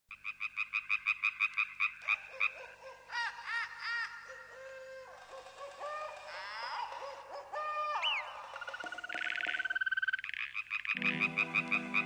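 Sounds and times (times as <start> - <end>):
frog whistled calls: 7.9 - 12.0
frog trilling chirps: 8.0 - 12.0.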